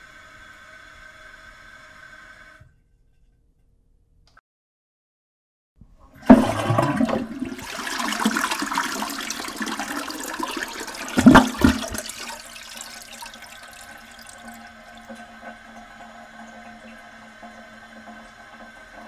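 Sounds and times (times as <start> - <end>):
toilet flushing: 6.0 - 19.0.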